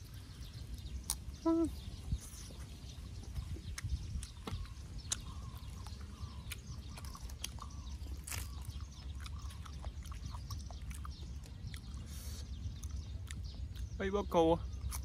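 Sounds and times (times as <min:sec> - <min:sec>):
person chewing: 0:00.6 - 0:14.0, 0:14.8 - 0:15.0
mouth clicks and smacks: 0:03.3 - 0:08.5.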